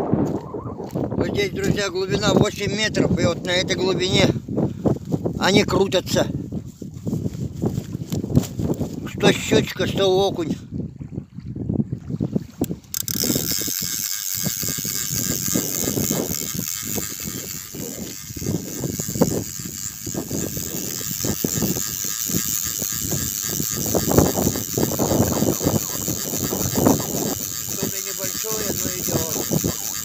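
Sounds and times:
wind rumbling on microphone: 0.0 - 30.0
fishing reel being cranked: 12.6 - 30.0.

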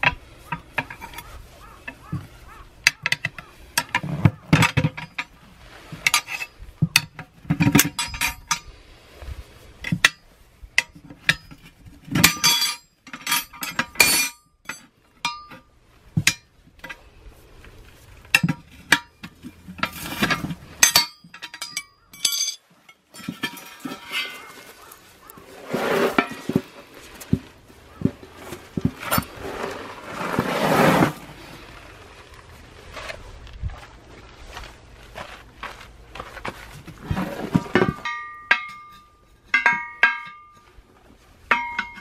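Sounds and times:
tire levers clinking on wheel rim: 0.0 - 5.4, 6.0 - 8.7, 9.8 - 17.1, 18.2 - 25.4, 26.1 - 29.4, 35.2 - 40.8, 41.5 - 42.0
tire bead scraping over rim: 17.3 - 20.9, 23.2 - 38.1.

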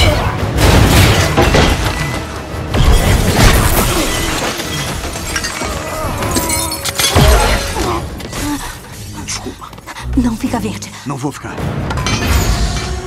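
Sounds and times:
film score music: 0.0 - 13.0
glass shattering: 2.8 - 7.8.

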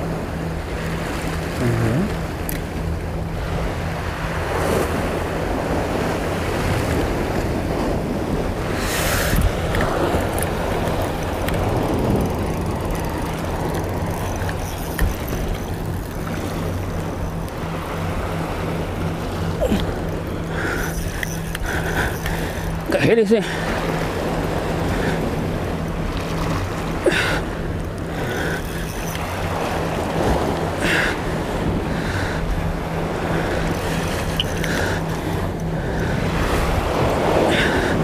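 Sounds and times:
steady low hum: 0.0 - 38.0
sea waves washing against rocks: 2.2 - 38.0
wind on microphone: 4.4 - 20.0.

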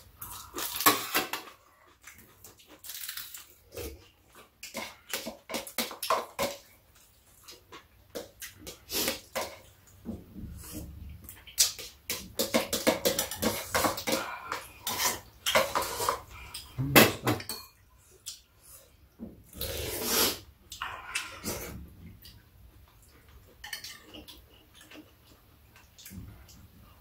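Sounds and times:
cutlery clinking against bowls: 11.6 - 17.8, 23.5 - 25.1.

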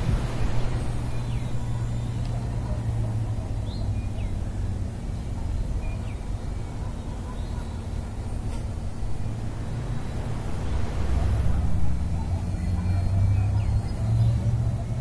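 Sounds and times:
wind buffeting microphone: 0.0 - 2.7, 7.8 - 14.0.

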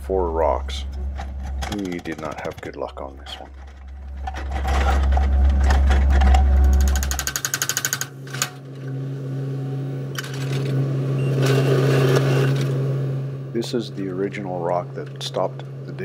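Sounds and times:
excavator engine hum: 0.0 - 16.0
hydraulic rock hammer pounding: 1.1 - 7.8.

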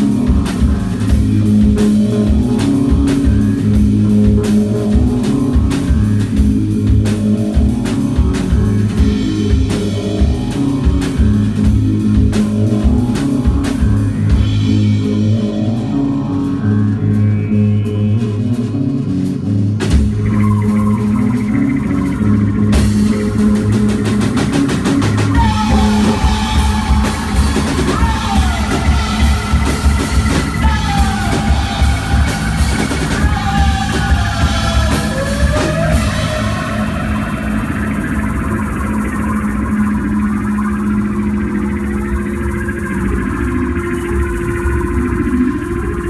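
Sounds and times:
electric bass guitars: 0.0 - 46.0
rising sweeps: 7.8 - 46.0
cymbals: 19.8 - 46.0.

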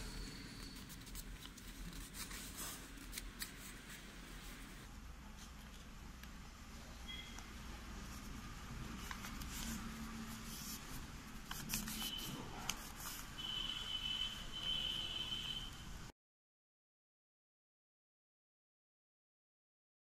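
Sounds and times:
paper rustling and crinkling: 0.6 - 4.8, 8.1 - 13.4
sharp paper crackles: 10.5 - 13.3.

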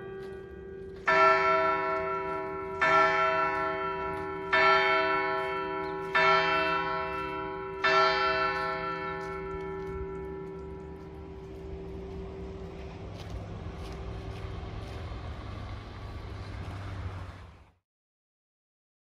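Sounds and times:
church bell ringing: 0.0 - 14.0.

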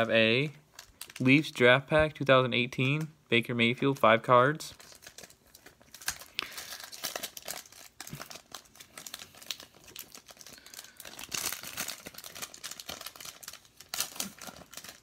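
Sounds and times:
foil wrapper crinkling: 0.0 - 1.6, 4.7 - 15.0.

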